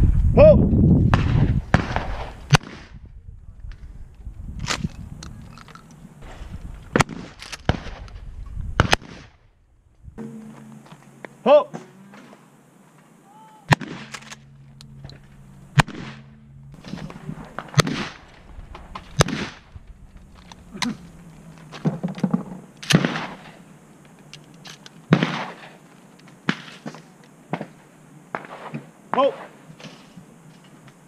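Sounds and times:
shotgun shots: 1.1 - 3.0, 6.9 - 8.1, 8.8 - 9.4, 13.7 - 14.6, 15.7 - 18.3, 19.0 - 19.7, 22.8 - 23.6, 25.1 - 25.8.

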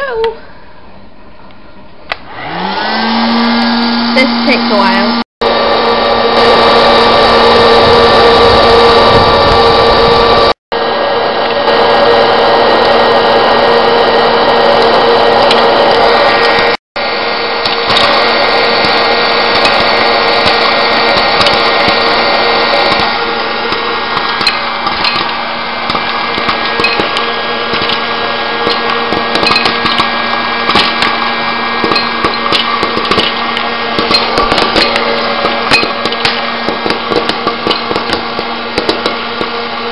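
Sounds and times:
popcorn machine fan whirring: 0.0 - 39.9
popcorn kernels popping: 17.6 - 39.6.

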